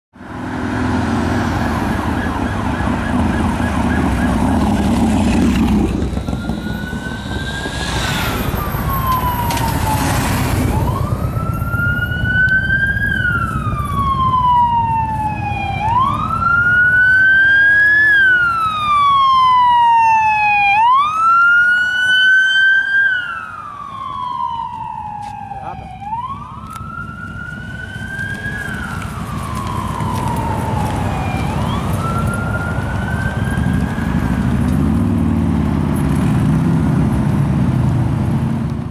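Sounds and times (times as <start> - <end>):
passing traffic rumble: 0.2 - 38.9
police siren wailing: 0.4 - 37.3.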